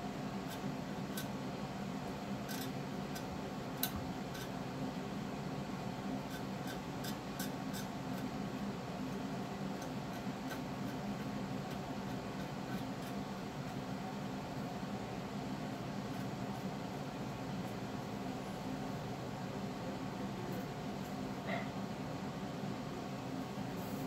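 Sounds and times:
low background hum: 0.0 - 24.0
paintbrush ticking on slate: 6.2 - 8.3, 9.2 - 13.9.

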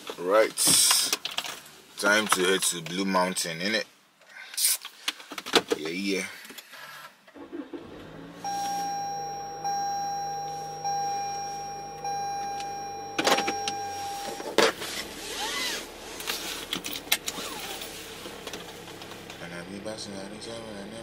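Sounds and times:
engine humming: 7.4 - 21.0
car warning chime: 8.4 - 14.6.

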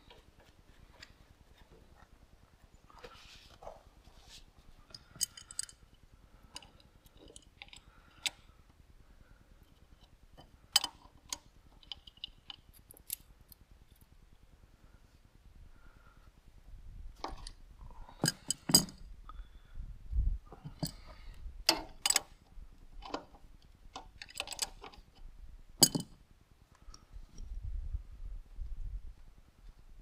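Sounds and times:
small hard parts clicking and clinking: 4.8 - 8.5, 9.6 - 14.2, 17.2 - 19.0, 20.6 - 26.2.

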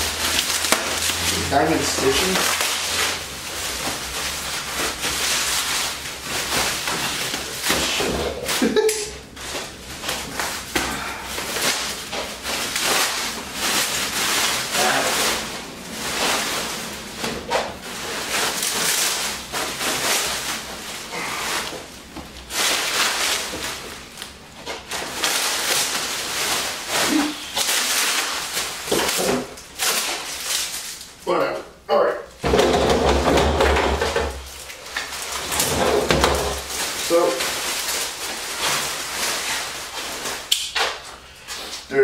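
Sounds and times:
bubble wrap crinkling: 0.0 - 31.2, 32.5 - 42.0.

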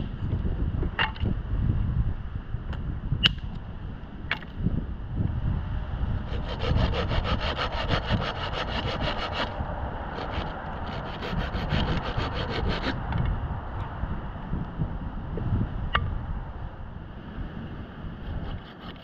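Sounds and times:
hand saw cutting branch: 6.2 - 13.0, 18.3 - 19.0.

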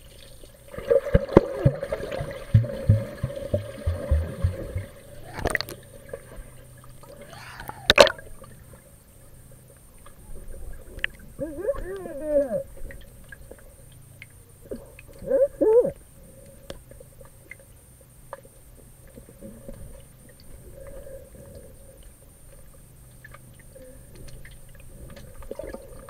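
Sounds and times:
low underwater hum: 0.0 - 26.0
faint clicks and crackles: 4.0 - 15.3
muffled person calling out: 11.4 - 12.7.

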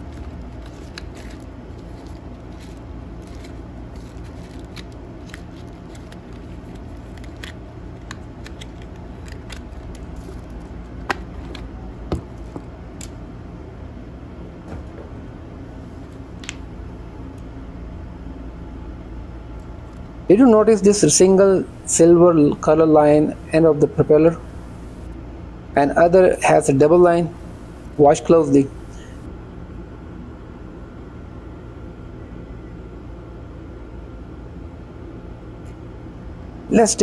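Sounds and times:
cardboard and plastic rustling: 0.0 - 12.6
low room hum: 0.0 - 37.0.

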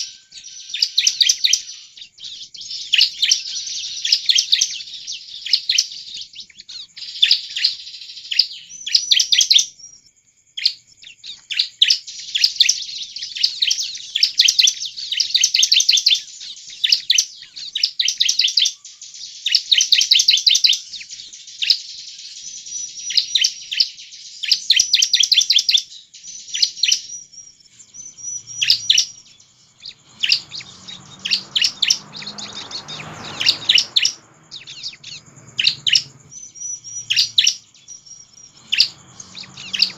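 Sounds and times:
bird singing rapid chirps: 0.0 - 39.9
faint low rumble: 28.0 - 39.9.

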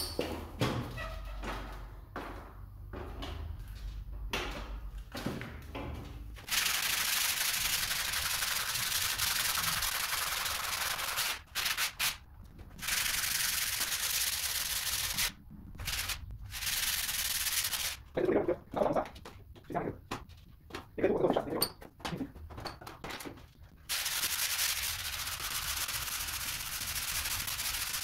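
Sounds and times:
sandpaper scratching on ceiling: 6.4 - 12.2, 12.8 - 18.0, 23.9 - 28.0.

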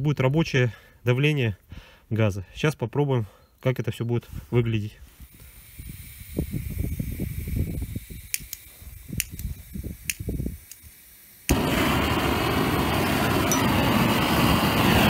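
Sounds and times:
torch flame roaring: 5.3 - 15.0
gas torch igniting pop: 5.4 - 14.4
low rumbling: 11.5 - 15.0.

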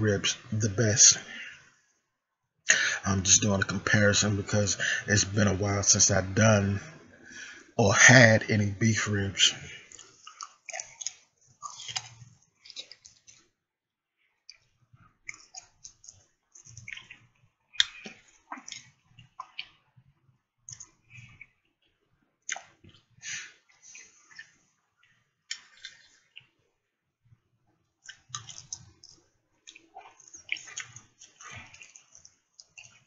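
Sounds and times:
man chewing food: 9.8 - 13.5, 14.3 - 26.7, 27.4 - 33.0
lip smacks: 22.5 - 22.7, 28.0 - 33.0.

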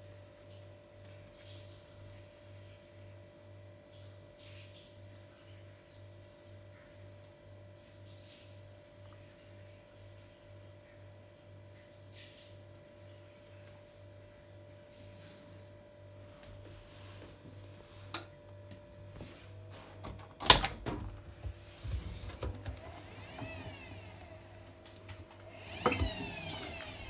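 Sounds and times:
washing machine hum: 0.0 - 27.0
door latch click: 20.0 - 21.1
door opening squeak: 22.4 - 24.6, 25.8 - 27.0.

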